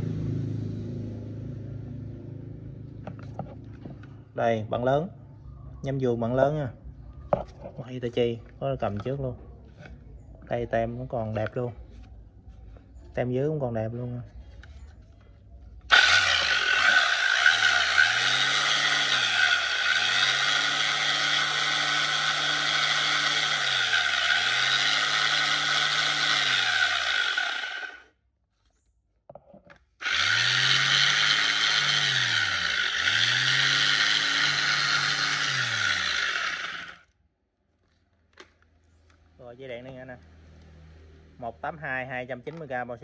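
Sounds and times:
orbital sander running: 0:15.9 - 0:28.0, 0:30.0 - 0:37.0.

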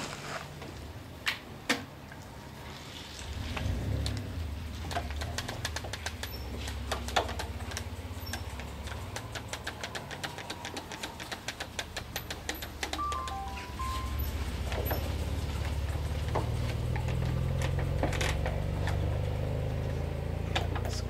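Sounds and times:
low hum: 0:13.0 - 0:20.4.

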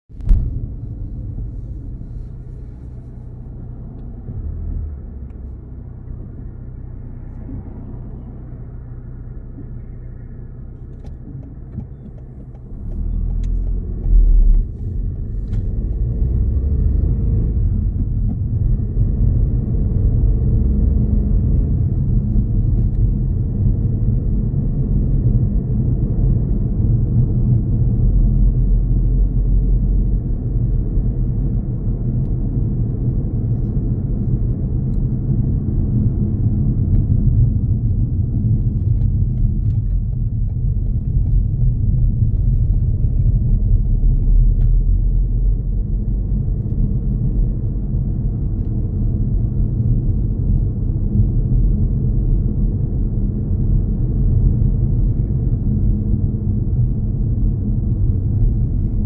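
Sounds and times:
car cabin road and engine rumble: 0:00.1 - 0:59.0
thump: 0:00.2 - 0:01.0.

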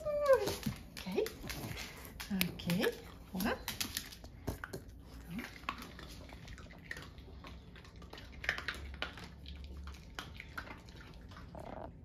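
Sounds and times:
dog paws tapping on wooden floor: 0:00.0 - 0:05.4.

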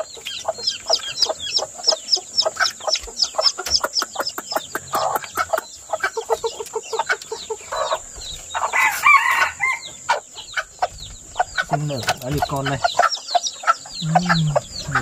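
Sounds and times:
chicks peeping: 0:00.0 - 0:15.0
hen harsh call: 0:13.8 - 0:15.0.

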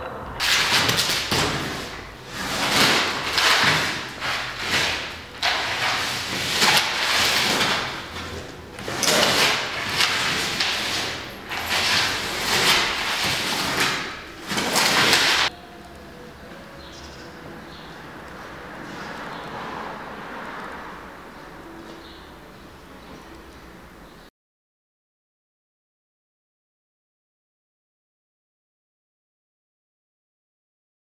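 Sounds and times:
paper crumpling and tearing: 0:00.4 - 0:15.5.

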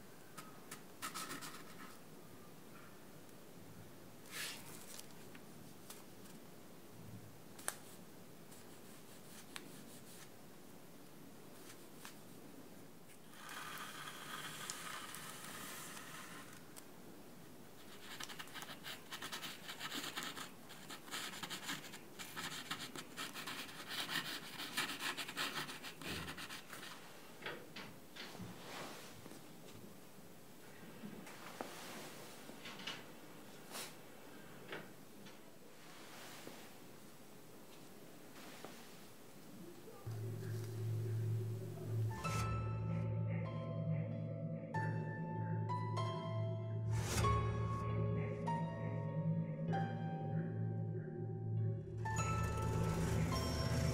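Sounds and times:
nozzle scratching on paper: 0:13.2 - 0:16.6, 0:17.8 - 0:27.0.

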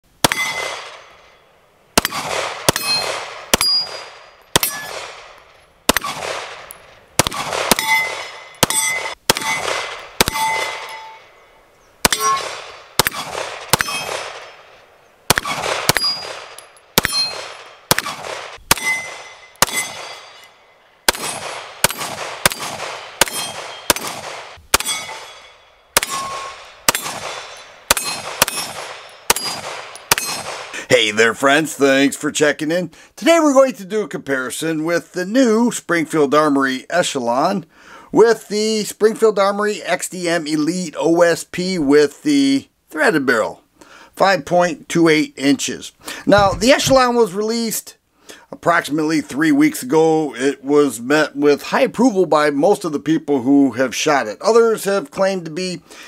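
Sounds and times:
pistol shots: 0:00.2 - 0:01.3, 0:02.0 - 0:11.2, 0:12.0 - 0:30.8
steel target ringing: 0:00.3 - 0:01.4, 0:02.7 - 0:05.0, 0:07.7 - 0:12.8, 0:13.7 - 0:14.6, 0:15.9 - 0:17.7, 0:18.7 - 0:22.6, 0:23.2 - 0:24.1, 0:24.8 - 0:30.6.

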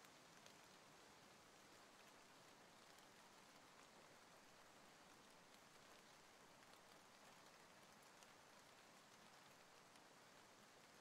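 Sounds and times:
faint steady rain: 0:00.0 - 0:11.0.

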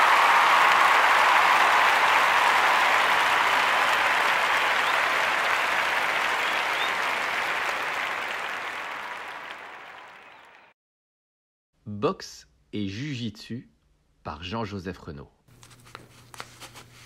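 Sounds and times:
crowd applause: 0:00.0 - 0:10.8.

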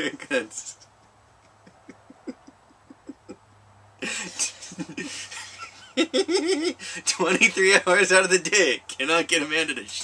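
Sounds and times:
woman laughing breathily: 0:01.5 - 0:03.4, 0:04.0 - 0:07.0
woman stifling giggles: 0:01.5 - 0:03.4.

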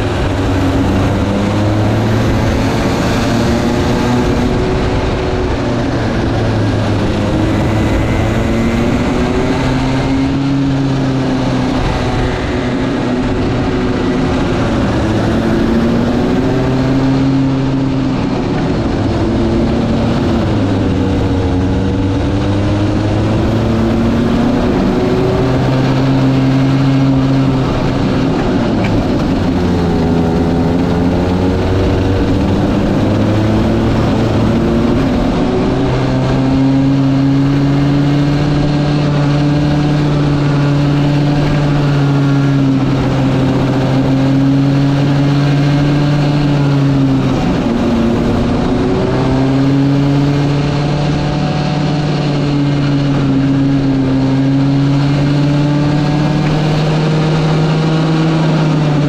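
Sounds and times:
go-kart engine running: 0:00.0 - 0:59.0
second engine rising and falling: 0:00.0 - 0:59.0.

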